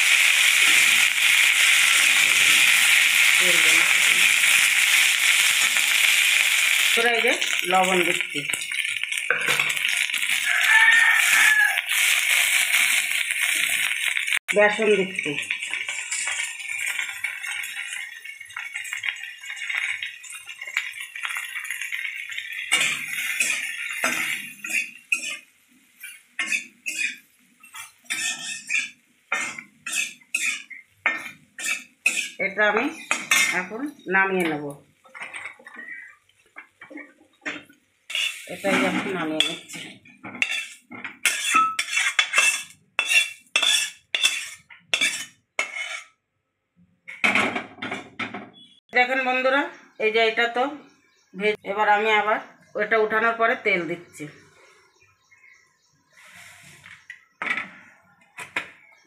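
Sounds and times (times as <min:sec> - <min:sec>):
metal spatula scraping a metal pan: 0:15.4 - 0:33.8, 0:36.9 - 0:46.2.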